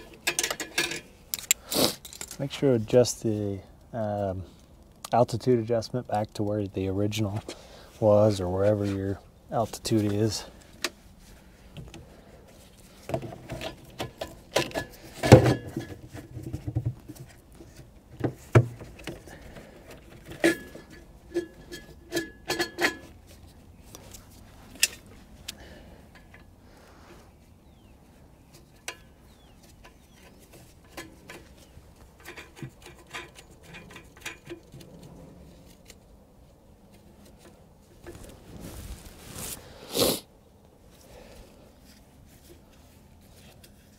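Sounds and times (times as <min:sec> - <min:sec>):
plastic parts clicking and knocking: 0:00.0 - 0:02.4
gloves rustling: 0:07.1 - 0:15.2, 0:23.0 - 0:43.9.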